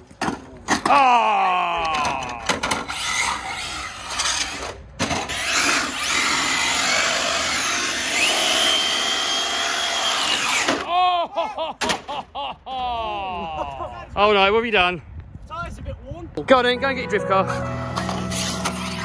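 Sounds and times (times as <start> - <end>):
electric motor whining: 5.3 - 10.8.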